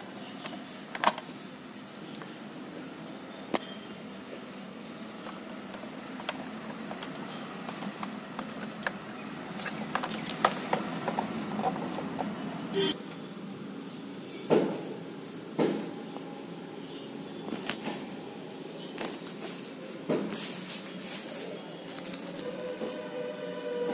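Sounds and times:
steady low background hum: 0.0s - 23.9s
plastic handling clicks and taps: 5.2s - 9.0s.

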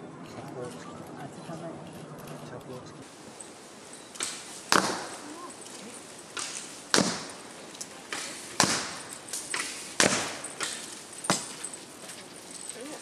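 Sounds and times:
arrows striking paper target: 4.2s - 5.3s, 6.4s - 7.4s, 8.1s - 11.6s.

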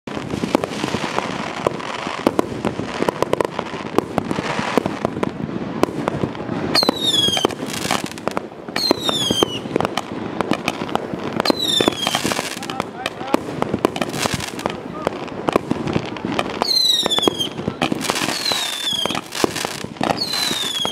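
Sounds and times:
firework cracks and pops: 0.1s - 20.9s
firework whistles falling in pitch: 6.7s - 8.0s, 8.8s - 9.7s, 11.4s - 12.4s, 16.6s - 20.9s.

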